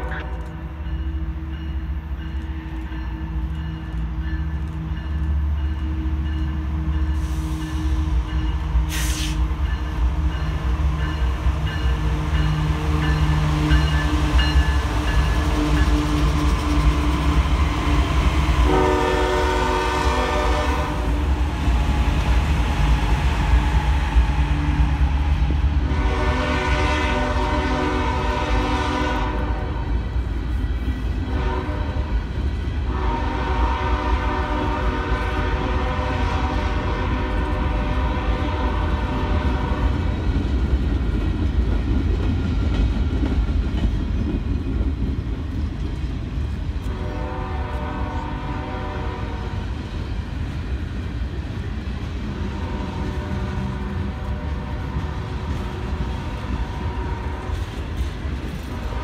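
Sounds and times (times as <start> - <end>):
train horn blasts: 0.0 - 0.8, 18.6 - 21.2, 25.8 - 30.0, 31.2 - 32.2, 32.8 - 40.1, 46.8 - 49.7, 52.4 - 57.9, 58.7 - 59.0
freight train rolling past: 0.0 - 59.0
wheels rumbling on rail: 0.0 - 59.0.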